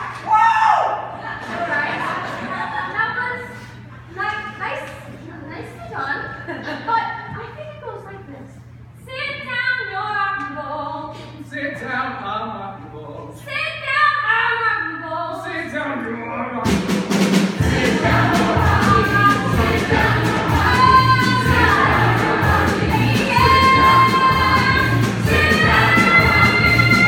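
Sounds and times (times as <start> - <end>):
band with steady beat: 16.7 - 27.0
chorus singing a show tune: 17.6 - 27.0.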